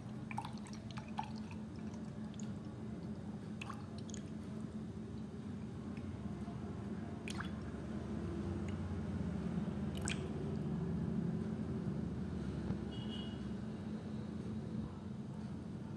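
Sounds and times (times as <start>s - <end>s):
small drips or clicks: 8.6s - 8.9s, 10.0s - 10.6s.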